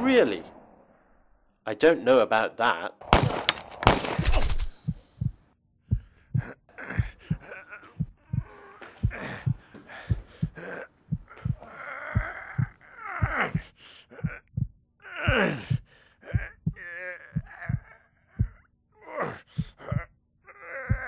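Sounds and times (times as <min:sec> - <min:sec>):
low heartbeat-like thumps: 0:04.2 - 0:18.7, 0:19.6 - 0:20.1
person gasping and groaning: 0:06.0 - 0:21.0.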